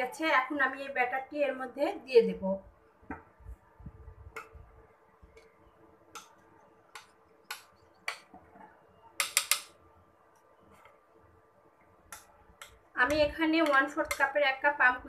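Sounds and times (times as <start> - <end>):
utensil clicking against bowl: 9.2 - 9.7.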